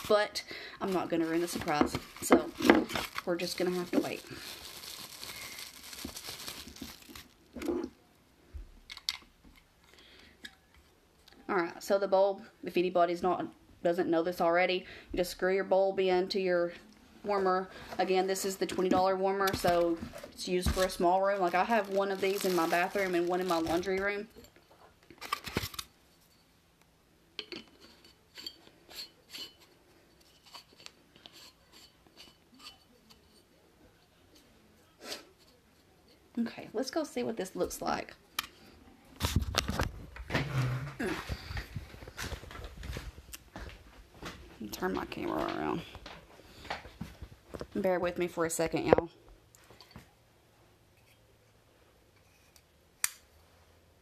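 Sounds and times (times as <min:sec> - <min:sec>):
plastic wrapping crinkling: 0:00.8 - 0:07.7, 0:18.7 - 0:24.3.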